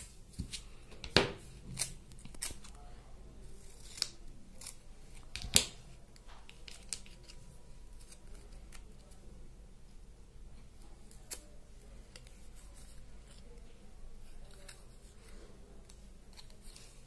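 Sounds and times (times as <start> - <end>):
scissors snipping paper: 3.6 - 5.7.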